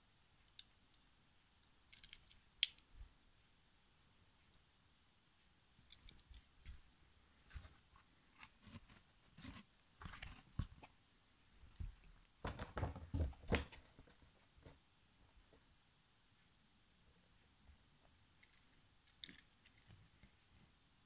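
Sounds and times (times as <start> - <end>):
toy car and cardboard box handling: 7.5 - 10.9.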